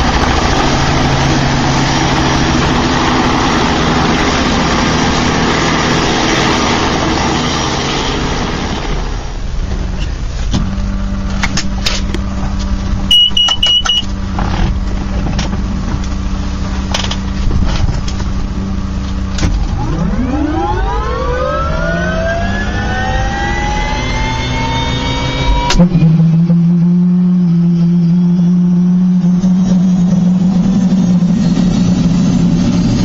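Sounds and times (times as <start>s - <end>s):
helicopter engine and rotor drone: 0.0s - 10.1s, 11.3s - 25.8s, 29.4s - 33.0s
turbine whine rising: 0.0s - 33.0s
short beep: 13.1s - 14.1s.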